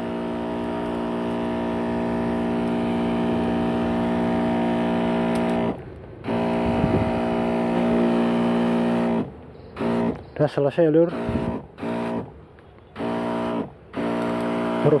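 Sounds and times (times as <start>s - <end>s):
pump motor humming: 0.0s - 10.3s, 10.9s - 15.0s
liquid spraying: 0.0s - 12.3s, 13.0s - 15.0s.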